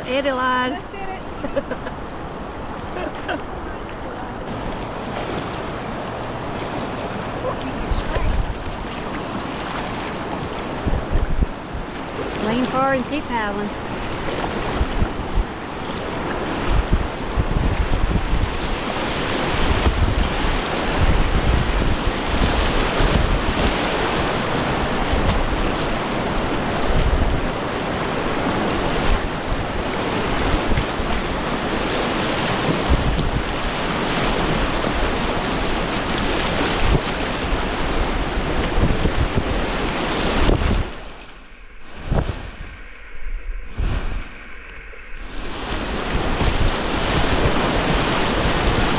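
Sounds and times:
river rapids rushing and splashing: 0.0 - 16.6, 43.7 - 48.9
wind rumbling on microphone: 0.0 - 48.9.

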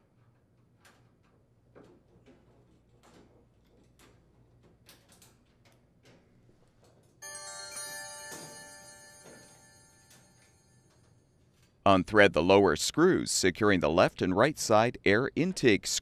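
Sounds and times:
bright chime sound effect: 7.2 - 10.9.

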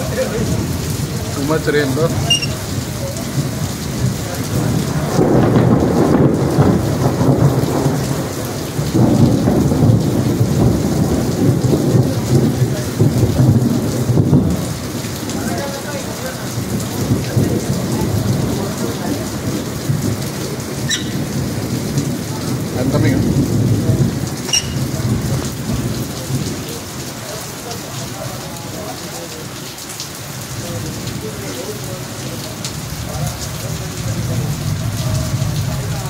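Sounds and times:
thunder rumbling: 0.0 - 27.2
steady rain: 0.0 - 36.0.

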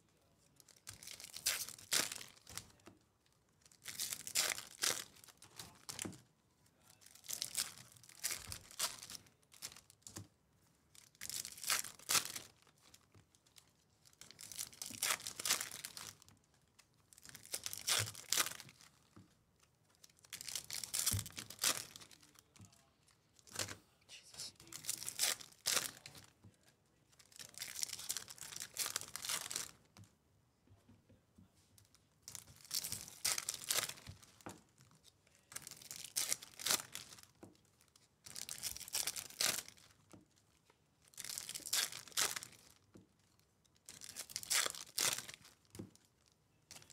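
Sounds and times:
foil wrappers tearing and crinkling: 0.7 - 2.6, 14.2 - 16.2, 17.2 - 18.9, 24.6 - 26.2, 27.3 - 29.7, 32.3 - 34.1, 35.6 - 37.3, 38.3 - 39.9, 41.2 - 42.8, 43.9 - 45.6.

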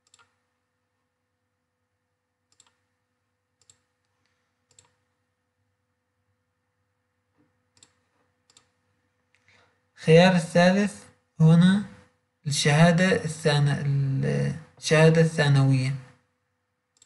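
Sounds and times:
computer mouse clicks: 0.0 - 0.4, 2.5 - 2.9, 3.6 - 5.1, 7.4 - 9.6.

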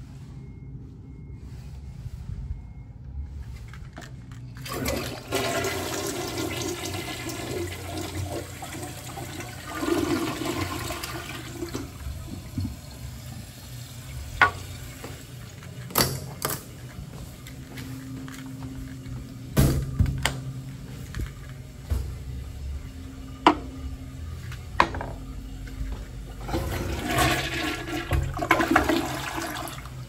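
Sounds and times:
toilet flushing: 4.6 - 16.9, 20.9 - 30.0
toilet tank refilling hiss: 4.7 - 15.3, 26.4 - 30.0.

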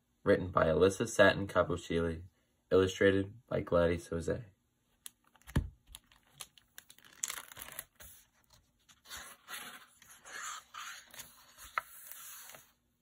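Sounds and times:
book pages turning: 5.2 - 12.9.

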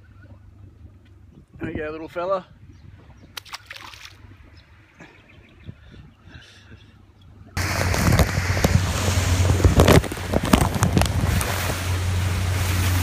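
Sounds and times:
wind on microphone: 0.6 - 13.0
outboard motor humming: 7.5 - 13.0
microphone knocks and buffets: 7.6 - 11.9.

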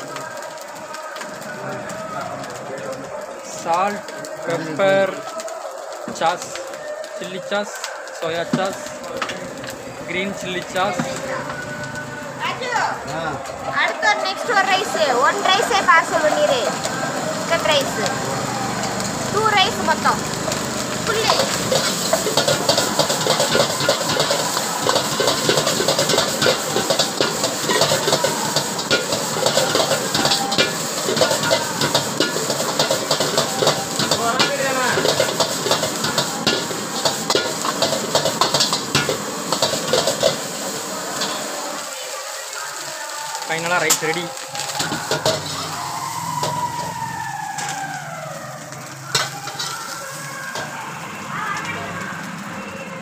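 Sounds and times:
rice sizzling in a wok: 0.0 - 53.0
metal ladle scraping a wok: 20.5 - 41.5, 43.9 - 45.8, 49.1 - 50.7
slowly falling tone: 44.5 - 52.7.

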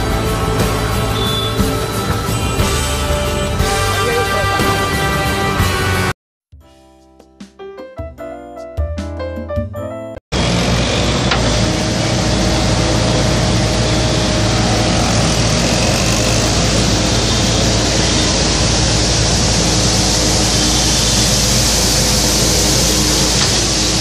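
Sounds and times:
loader engine humming: 0.0 - 5.4, 10.4 - 24.0.

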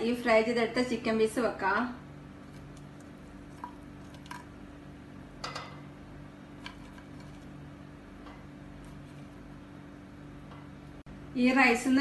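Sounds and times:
steady low hum: 0.0 - 12.0
soft squishy food contacts: 2.3 - 4.5.

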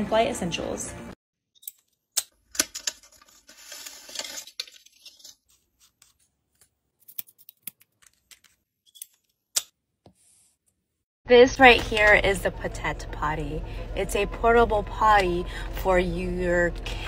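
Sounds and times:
rustling and scraping of packaging: 2.7 - 6.4.

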